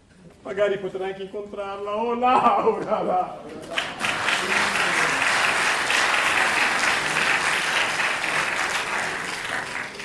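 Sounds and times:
audience applauding: 3.7 - 10.0.

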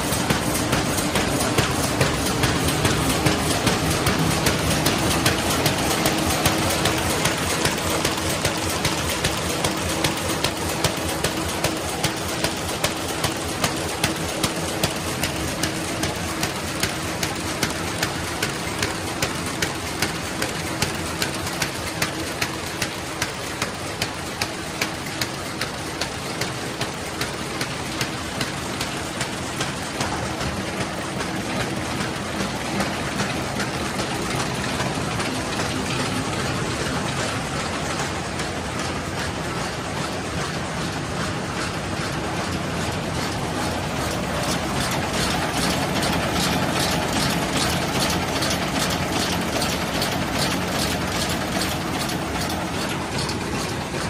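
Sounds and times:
light roller ticks: 0.0 - 54.0
paper bag machine clicking: 0.0 - 54.0
steady mechanical hum: 0.0 - 54.0.

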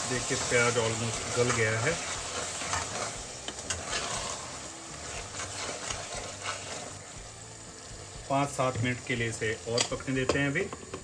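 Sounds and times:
meat and onions sizzling: 0.0 - 11.0
metal ladle scraping pot: 0.2 - 7.0.

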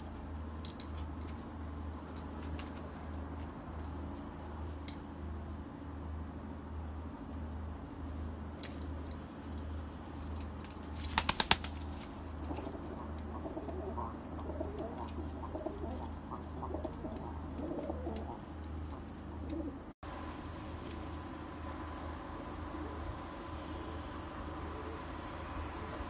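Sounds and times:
pigeon wings clapping: 10.6 - 19.7
pigeons cooing: 12.3 - 19.9.

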